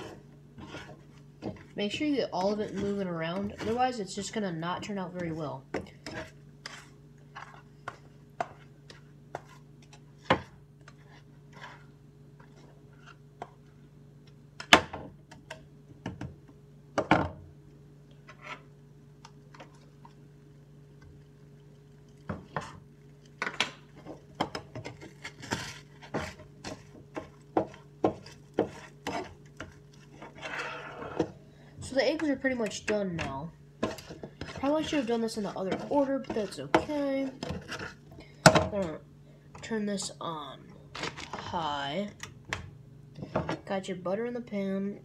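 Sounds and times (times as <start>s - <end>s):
spatula scraping a frying pan: 0.0s - 4.4s, 5.9s - 13.2s, 23.9s - 31.4s, 33.8s - 38.1s.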